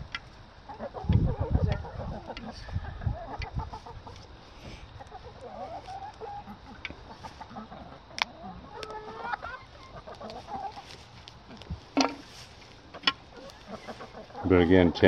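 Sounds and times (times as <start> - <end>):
hens clucking: 0.0 - 15.0.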